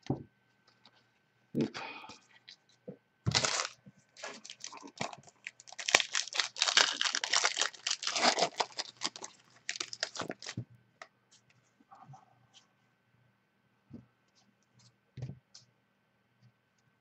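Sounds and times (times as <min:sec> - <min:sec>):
foil wrapper tearing and crinkling: 0:03.3 - 0:10.6.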